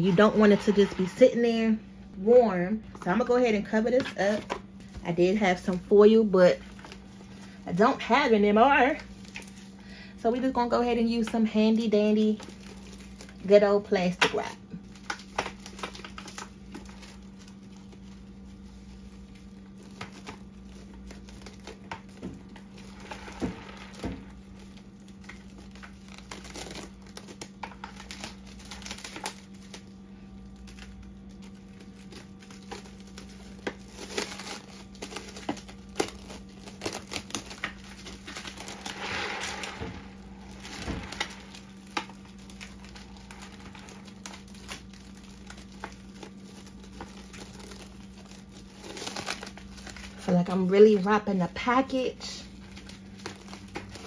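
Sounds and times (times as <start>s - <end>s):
plastic wrap crinkling: 0.0s - 54.0s
low hum: 14.6s - 50.8s.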